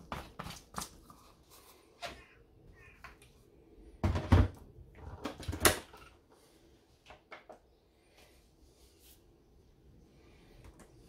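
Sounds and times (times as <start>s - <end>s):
kitchen appliance clunks and knocks: 4.0s - 4.6s.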